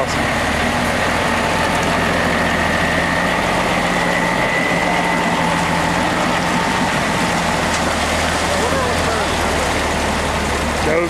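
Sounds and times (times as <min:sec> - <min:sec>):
diesel truck engine running: 0:00.0 - 0:11.0
high whine: 0:00.0 - 0:11.0.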